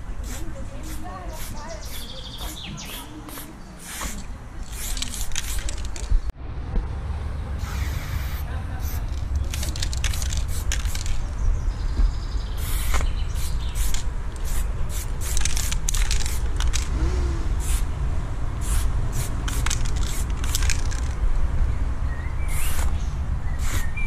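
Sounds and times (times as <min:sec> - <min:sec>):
spray paint can hissing: 0:00.2 - 0:06.2, 0:07.6 - 0:11.2, 0:12.6 - 0:16.9, 0:17.6 - 0:17.8, 0:18.6 - 0:21.2, 0:22.5 - 0:23.0, 0:23.6 - 0:24.0
steady low rumble: 0:04.3 - 0:23.6.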